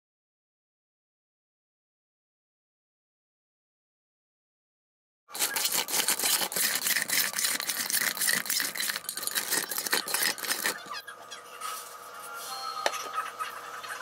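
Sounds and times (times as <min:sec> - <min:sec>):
metal tongs scraping steel bowl: 0:05.3 - 0:11.0.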